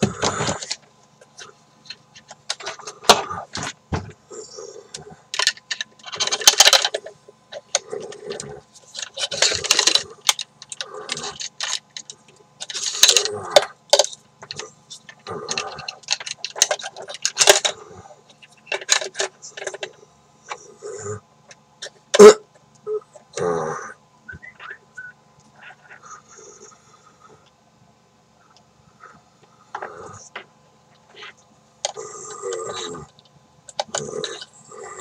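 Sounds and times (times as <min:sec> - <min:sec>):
plastic gadget clicks and rattles: 0:05.3 - 0:20.0, 0:32.6 - 0:34.5.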